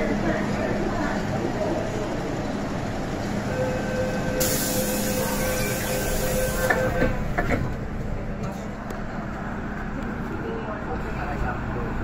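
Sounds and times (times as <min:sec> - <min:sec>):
door warning tone: 0:03.6 - 0:07.3
hiss: 0:04.4 - 0:06.6.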